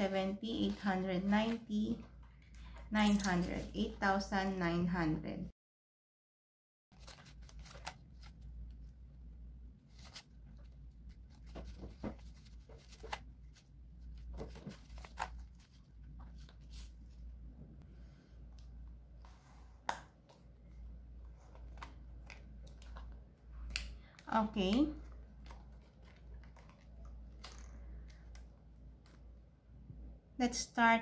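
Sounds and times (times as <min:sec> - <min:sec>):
paper banknotes rustling: 0:06.9 - 0:08.5, 0:09.9 - 0:17.2.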